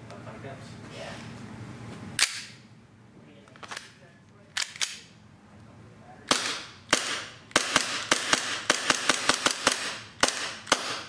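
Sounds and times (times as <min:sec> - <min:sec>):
airsoft pistol shots: 0:06.3 - 0:11.0.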